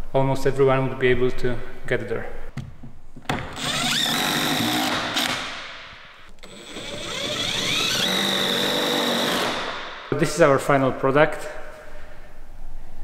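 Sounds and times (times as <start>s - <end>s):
power driver motor whine: 6.4s - 9.7s.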